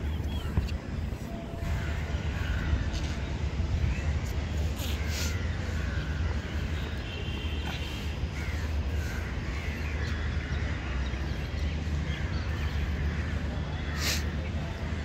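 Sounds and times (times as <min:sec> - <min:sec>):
steady low rumble: 0:00.0 - 0:13.6
crows cawing: 0:01.6 - 0:03.0, 0:07.8 - 0:10.8.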